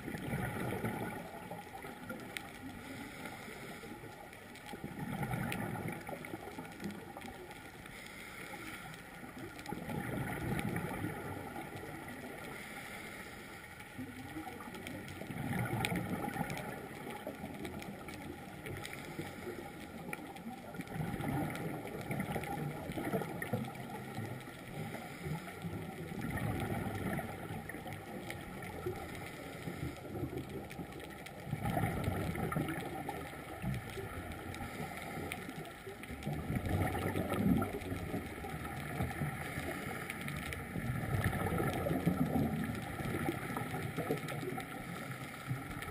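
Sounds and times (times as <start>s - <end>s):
bubbles gurgling underwater: 0.0s - 3.6s, 4.2s - 7.5s, 9.2s - 12.7s, 14.0s - 45.9s.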